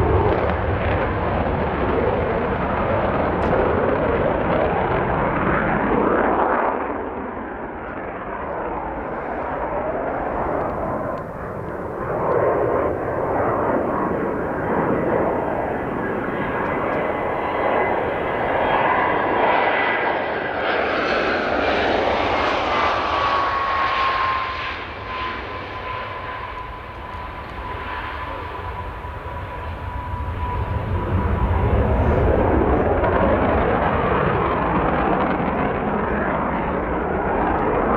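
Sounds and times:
jet engine rushing noise: 8.8s - 34.5s
thin jet whine: 9.1s - 33.1s.

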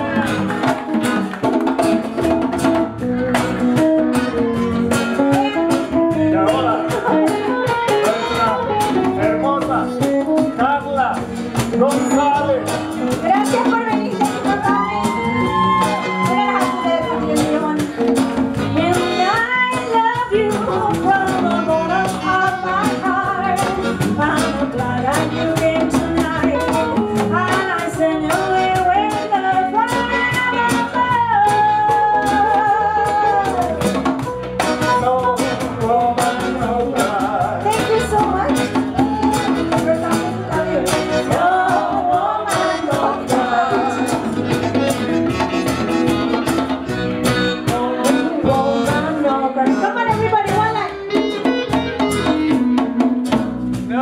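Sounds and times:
acoustic guitar: 0.0s - 54.0s
electric guitar: 0.0s - 54.0s
keyboard: 0.0s - 54.0s
saxophone: 0.0s - 54.0s
woman singing: 3.4s - 10.6s, 13.0s - 44.8s, 47.6s - 51.5s.

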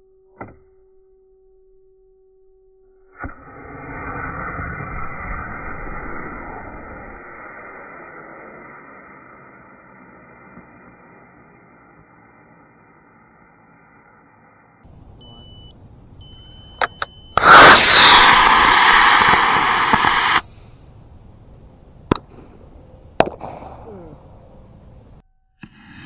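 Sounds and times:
rocket motor rushing hiss: 3.3s - 13.6s, 17.3s - 21.5s
short electronic beeps: 15.1s - 20.1s.

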